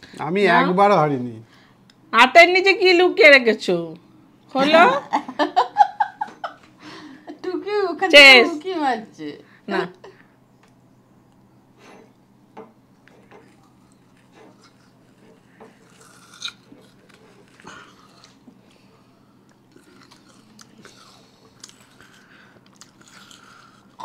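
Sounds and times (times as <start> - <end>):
people chewing crunchy fruit: 13.0 - 24.0.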